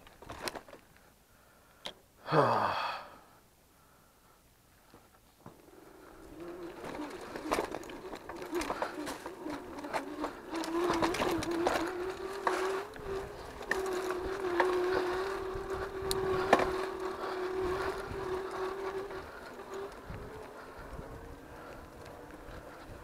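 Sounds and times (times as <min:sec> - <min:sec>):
electric bike motor whining: 0:05.6 - 0:23.0
bike knocks and rattles: 0:06.4 - 0:23.0.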